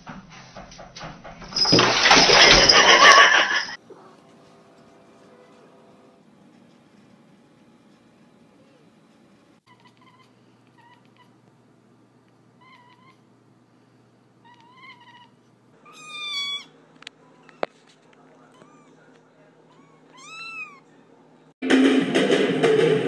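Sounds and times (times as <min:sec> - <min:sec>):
cat meowing: 0:12.6 - 0:13.2, 0:14.4 - 0:17.7, 0:18.5 - 0:19.1, 0:19.7 - 0:20.9.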